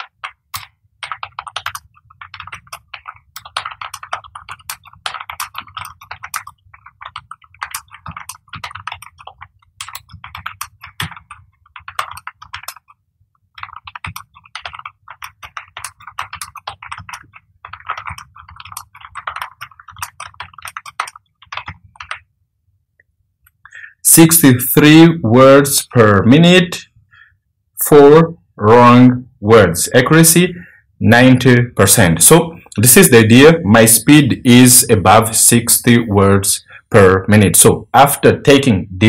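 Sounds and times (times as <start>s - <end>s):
fast typing on keyboard: 0.0s - 22.3s.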